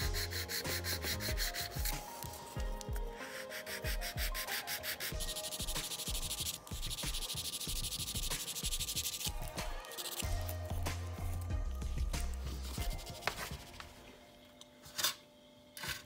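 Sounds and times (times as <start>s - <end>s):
nail file rasping on acrylic nail: 0.0s - 2.3s, 3.2s - 10.6s
background music: 0.0s - 16.0s.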